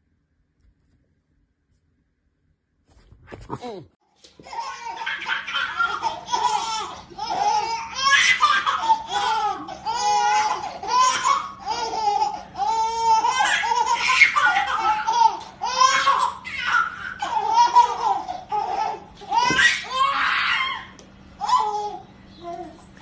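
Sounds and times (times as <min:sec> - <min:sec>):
babies laughing: 0:04.4 - 0:22.1.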